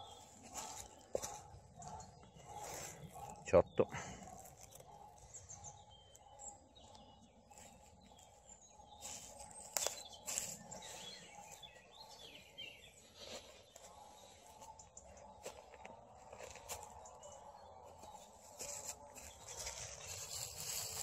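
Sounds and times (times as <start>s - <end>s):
faint birds chirping: 0.0s - 21.0s
footsteps on leaf litter: 0.2s - 1.6s, 9.0s - 11.7s, 18.0s - 21.0s.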